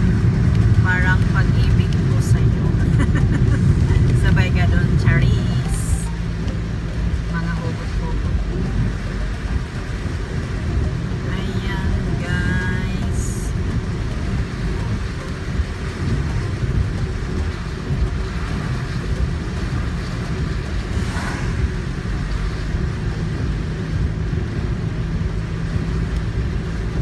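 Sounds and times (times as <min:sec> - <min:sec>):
in-cabin road and engine rumble: 0:00.0 - 0:27.0
brief swish: 0:21.0 - 0:21.6.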